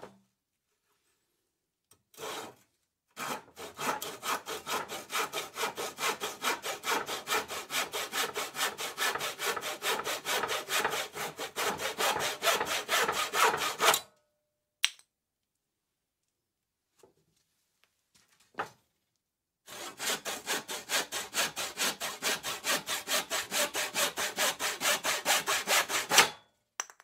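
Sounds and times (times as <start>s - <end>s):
handsaw sawing wood: 2.2s - 2.6s, 3.2s - 14.0s, 19.7s - 26.4s.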